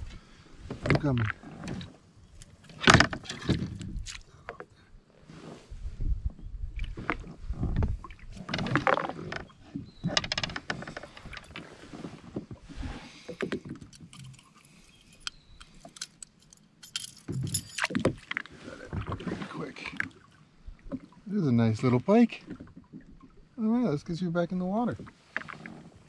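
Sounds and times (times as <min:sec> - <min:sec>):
water splashes: 0:17.6 - 0:24.2.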